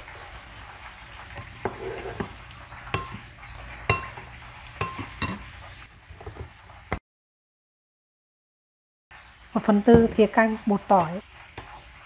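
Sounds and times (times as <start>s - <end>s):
metal spoon stirring sauce: 1.4s - 3.2s
spoon clinking against ceramic bowl: 3.0s - 3.2s, 3.9s - 4.2s, 4.8s - 5.5s.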